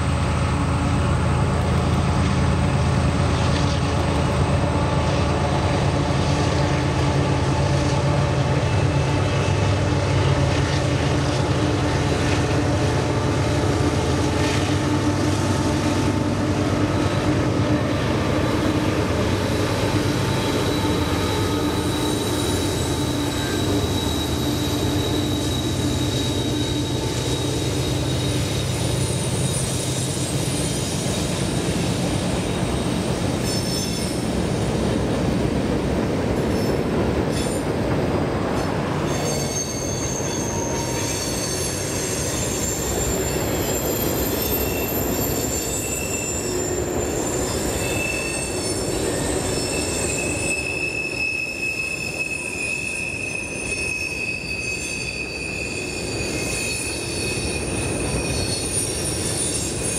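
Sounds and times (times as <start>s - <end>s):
diesel locomotive engine drone: 0.0s - 59.9s
freight cars rumbling on rails: 0.0s - 59.9s
high wheel squeals: 18.3s - 34.5s, 38.4s - 59.9s.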